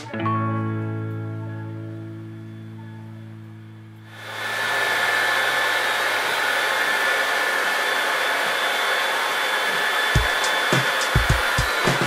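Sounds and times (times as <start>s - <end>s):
hair dryer running: 4.0s - 12.0s.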